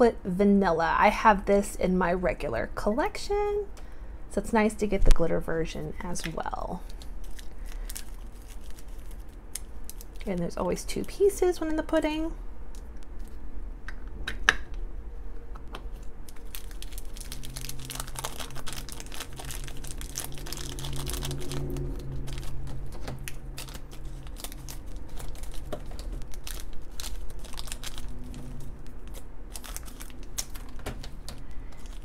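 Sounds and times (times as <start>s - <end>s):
foil wrapper crinkling and tearing: 6.8s - 11.3s, 16.2s - 32.0s.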